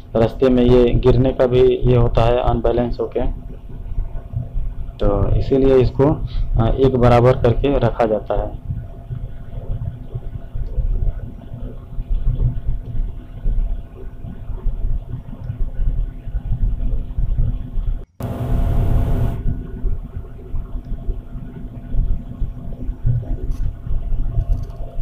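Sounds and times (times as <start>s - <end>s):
vehicle engine low rumble: 8.3s - 25.0s.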